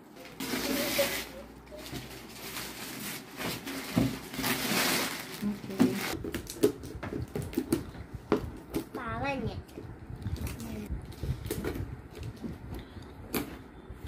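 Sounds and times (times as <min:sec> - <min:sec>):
wrapping paper rustling and tearing: 0:00.2 - 0:06.6.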